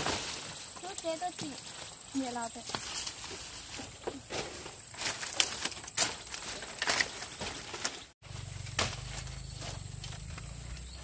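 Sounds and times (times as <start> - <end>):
dry thatch rustling and crackling: 0.0 - 11.0.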